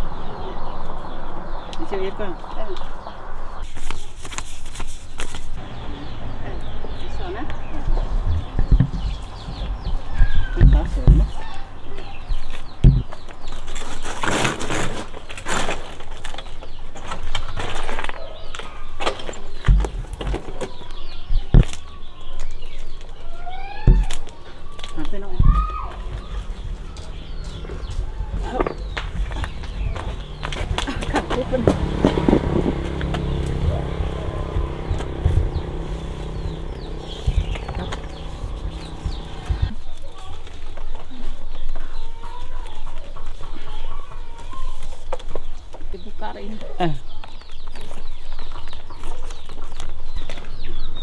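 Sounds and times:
birds chirping: 0.0 - 51.0
rustling flapping noise: 3.6 - 5.6
dull thumps: 7.9 - 11.5, 12.8 - 13.3, 25.4 - 39.8
small motorbike engine idling: 26.0 - 39.8.

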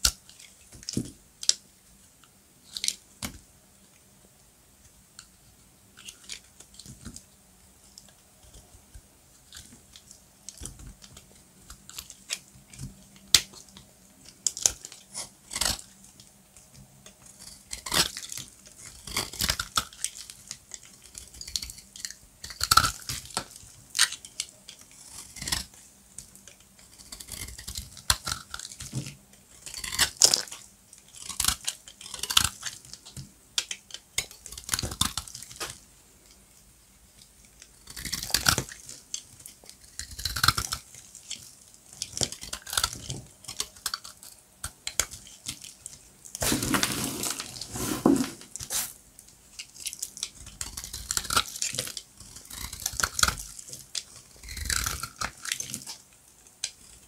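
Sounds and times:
soap being cut and crumbled: 9.4 - 16.2, 17.0 - 35.8, 37.6 - 48.9, 49.6 - 56.0.

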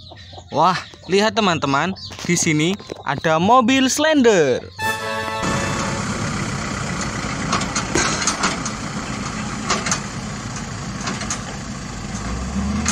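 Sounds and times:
road roller diesel engine running: 4.8 - 12.1.

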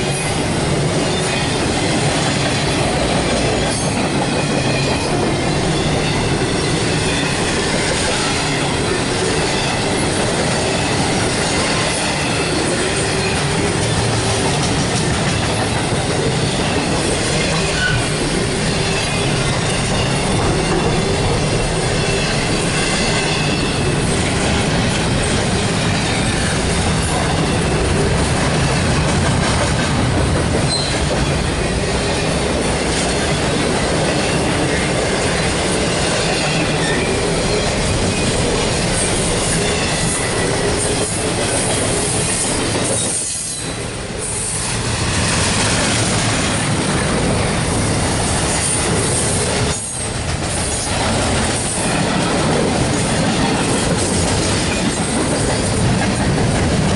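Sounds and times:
freight train wheels rumbling: 0.0 - 56.9
faint high wheel squeal: 17.5 - 24.4, 30.7 - 31.1, 42.0 - 44.6.

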